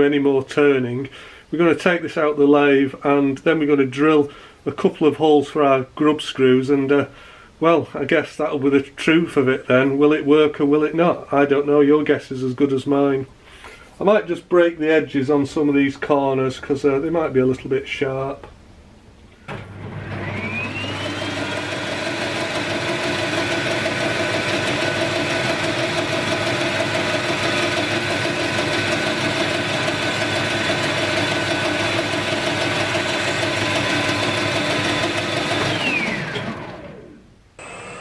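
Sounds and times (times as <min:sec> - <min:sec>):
metal lathe whining: 0:20.2 - 0:38.0.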